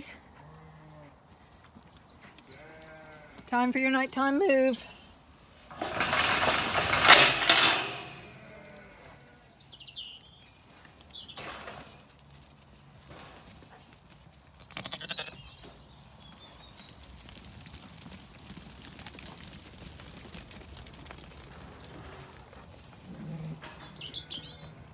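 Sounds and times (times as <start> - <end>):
sheep bleating: 2.5 - 3.5, 8.1 - 9.5, 14.6 - 15.4
metal gate rattling open: 5.7 - 8.9.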